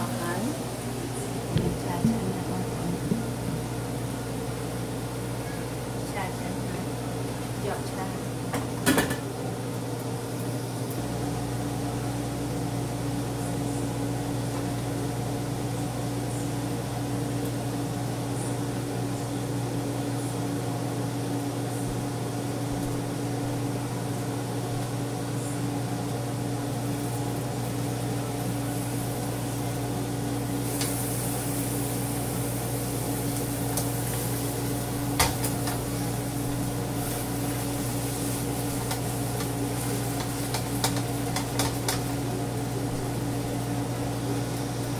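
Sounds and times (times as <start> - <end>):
range hood fan humming: 0.0 - 44.9
spatula knocking on pan: 40.2 - 42.1.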